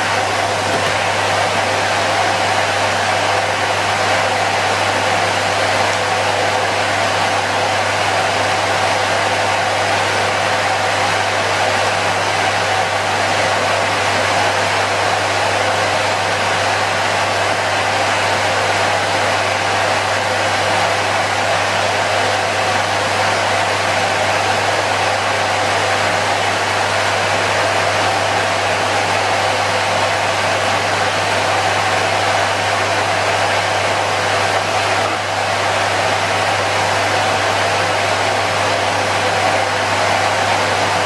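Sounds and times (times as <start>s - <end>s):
vacuum cleaner motor whine: 0.0s - 41.0s.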